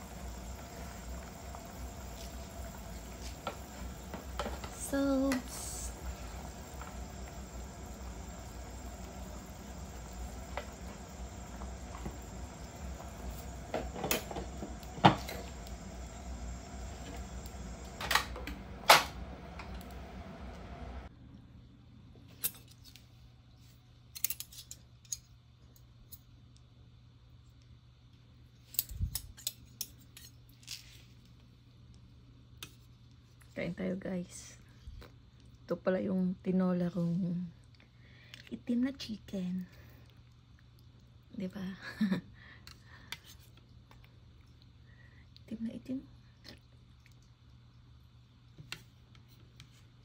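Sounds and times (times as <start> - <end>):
soup bubbling in a pot: 0.0 - 17.9.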